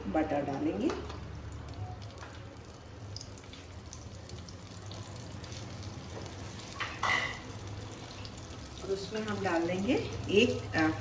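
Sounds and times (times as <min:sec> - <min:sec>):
butter sizzling in oil: 0:02.8 - 0:11.0.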